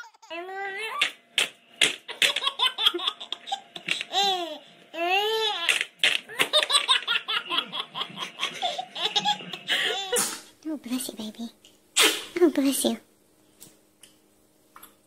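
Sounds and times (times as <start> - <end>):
baby laughing and squealing: 0.0 - 1.1, 2.1 - 10.2.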